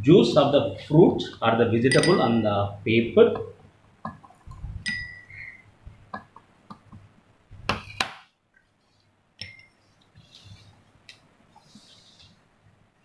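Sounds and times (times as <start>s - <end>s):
glass rod clinking on glassware: 1.9s - 2.4s, 4.8s - 5.6s, 9.4s - 9.8s.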